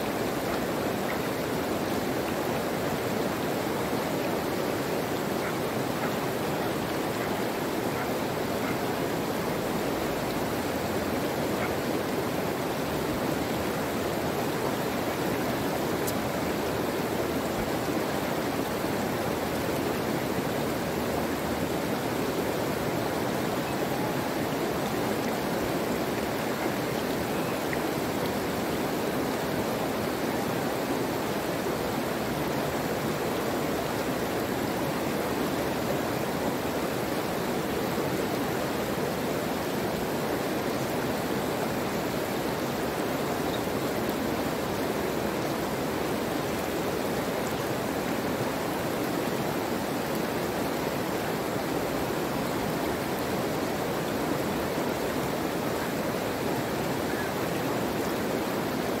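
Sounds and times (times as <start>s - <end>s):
water rushing: 0.0s - 59.0s.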